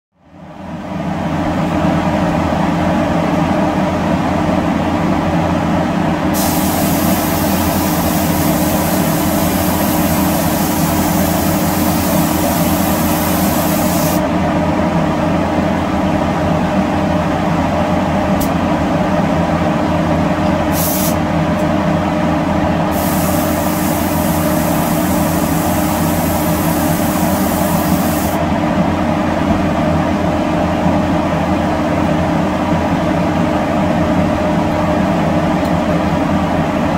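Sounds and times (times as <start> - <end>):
steady machine hum: 0.2 - 36.9
spray gun hissing: 6.4 - 14.2, 20.7 - 21.2, 22.9 - 28.4.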